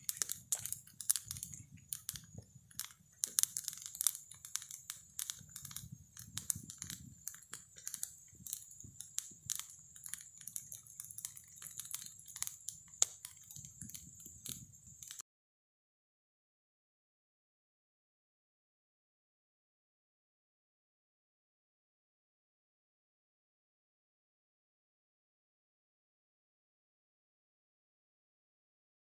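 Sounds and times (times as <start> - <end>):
wood fire crackling and popping: 0.0 - 15.2.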